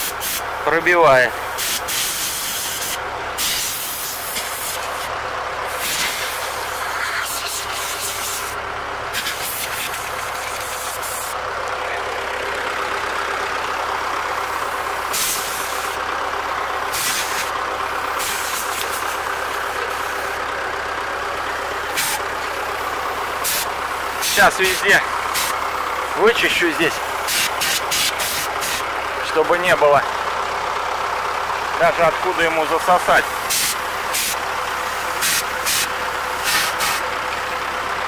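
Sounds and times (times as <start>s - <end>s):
engine hum: 0.0s - 38.0s
air blow gun hissing: 0.1s - 0.4s, 1.6s - 5.1s, 5.8s - 8.6s, 15.1s - 15.9s, 16.9s - 17.5s, 18.2s - 19.2s, 21.9s - 22.2s, 23.4s - 24.4s, 25.3s - 25.5s, 27.3s - 28.8s, 33.3s - 34.4s, 35.2s - 37.0s.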